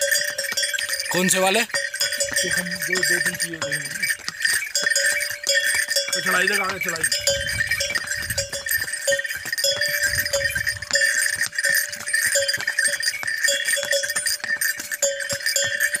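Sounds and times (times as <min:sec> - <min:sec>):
harness bells ringing: 0:00.0 - 0:16.0.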